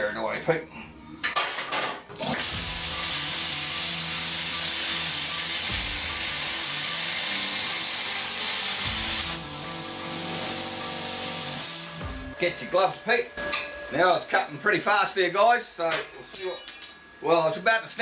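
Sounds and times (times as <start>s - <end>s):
plasma torch hissing: 2.2s - 12.4s
steady machine hum: 2.4s - 16.3s.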